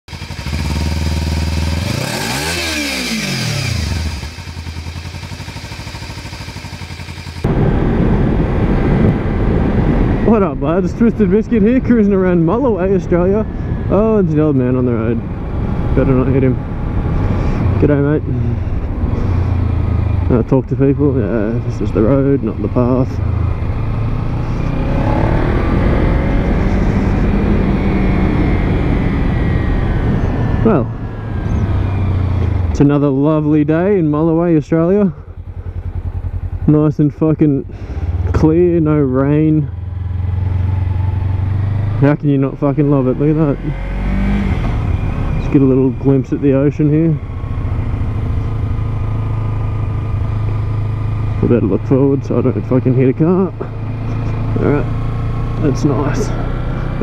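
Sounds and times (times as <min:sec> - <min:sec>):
motorcycle engine idling and revving: 0:00.0 - 0:57.0
wind rumble on microphone: 0:07.4 - 0:32.8.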